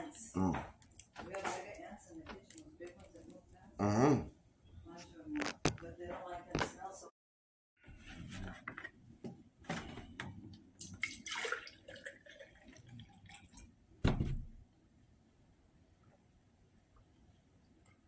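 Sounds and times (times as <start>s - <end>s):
milk pouring into glass: 10.8s - 13.7s
jug thump on table: 14.0s - 14.5s.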